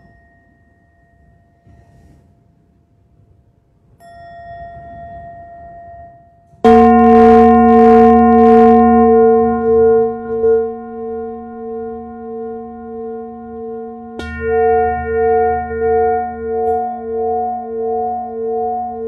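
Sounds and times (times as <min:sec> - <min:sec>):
singing bowl ringing: 0:00.0 - 0:02.1, 0:04.0 - 0:19.0
small bell ringing: 0:04.0 - 0:19.0.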